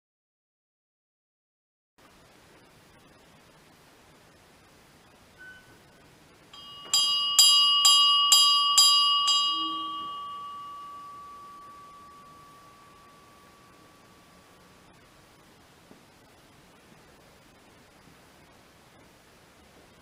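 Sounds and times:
small church bell ringing: 6.5 - 14.8.

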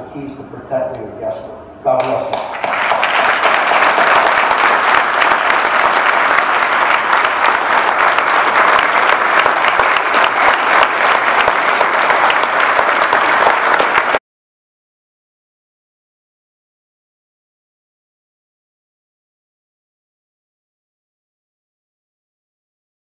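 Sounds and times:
audience applause: 2.3 - 14.2.

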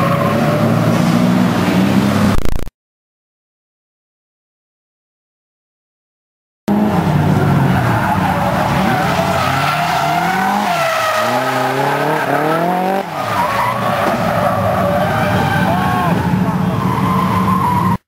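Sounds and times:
car engine revving: 6.7 - 17.9
tyres squealing: 7.4 - 18.0.

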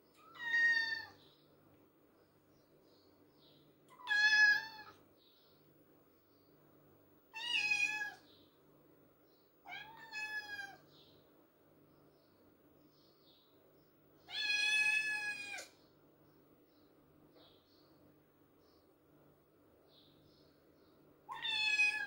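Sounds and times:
kitten meowing: 0.2 - 1.1, 3.9 - 4.9, 7.4 - 8.2, 9.7 - 10.8, 21.3 - 22.0.

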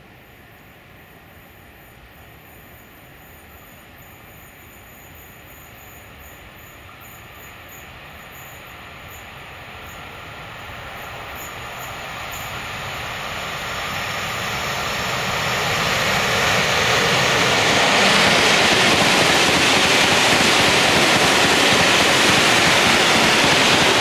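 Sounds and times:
freight train running on rails: 0.0 - 24.0.

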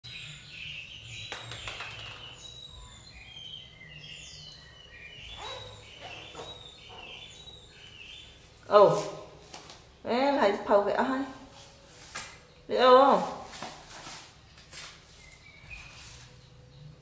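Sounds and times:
small birds chirping: 0.0 - 13.6, 15.0 - 17.0.

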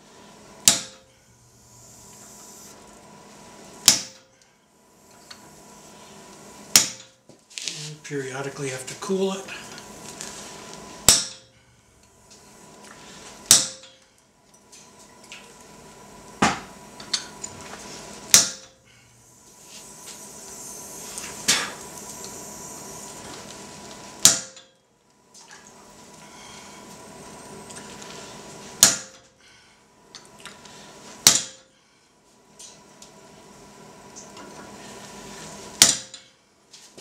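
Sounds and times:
hammer striking chisel: 0.6 - 1.0, 3.8 - 4.2, 6.7 - 7.2, 11.1 - 11.5, 13.5 - 14.0, 18.3 - 18.7, 24.2 - 24.7, 28.8 - 29.2, 31.2 - 31.6, 35.8 - 36.2.

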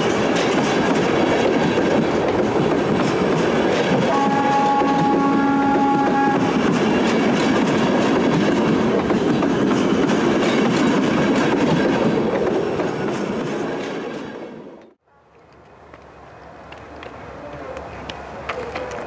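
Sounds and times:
train wheels on rails: 0.0 - 19.0
train horn blast: 4.1 - 6.7.

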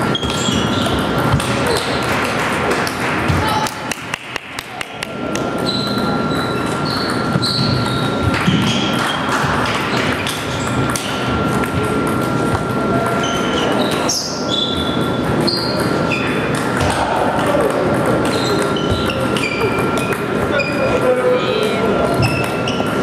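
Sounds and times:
table tennis balls clicking: 0.0 - 14.1, 14.7 - 21.0, 21.6 - 23.0
short squeaks: 0.1 - 1.0, 5.6 - 9.1
ball bounces: 0.1 - 13.2, 15.7 - 20.2.

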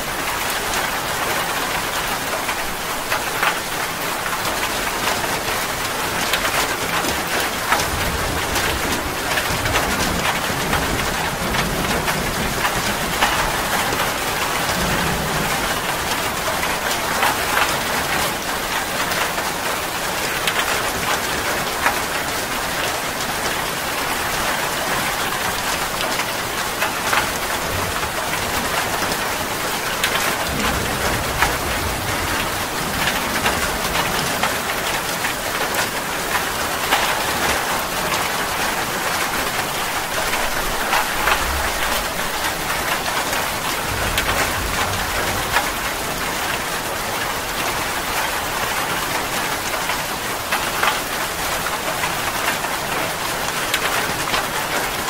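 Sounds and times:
rain drops ticking: 0.0 - 55.0
steady rain falling: 0.0 - 55.0
distant thunder rumbles: 7.2 - 18.2, 27.0 - 35.7, 39.0 - 48.7.

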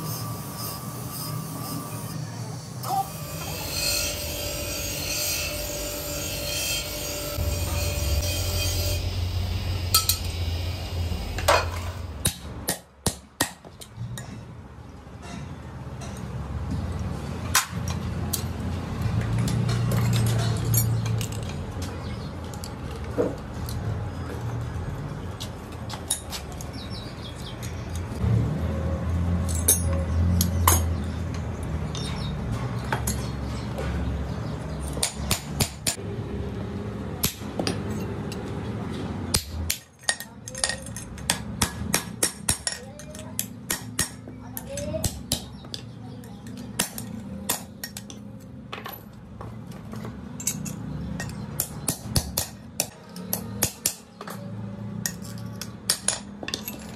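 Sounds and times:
bench grinder grinding steel: 0.0 - 12.2
metal tools clinking: 19.4 - 21.7, 39.8 - 41.3, 49.9 - 51.5, 55.0 - 56.9.

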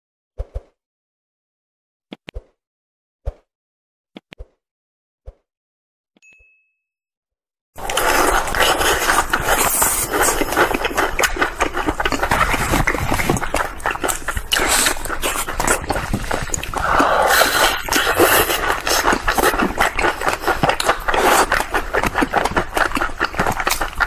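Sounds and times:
crunchy chewing: 7.8 - 24.0
lip smacking: 7.8 - 24.0.

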